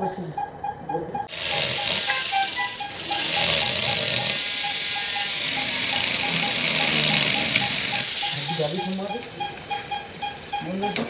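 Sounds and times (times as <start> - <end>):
short beeps: 0.3 - 11.0
drill high-pitched hiss: 1.3 - 9.2.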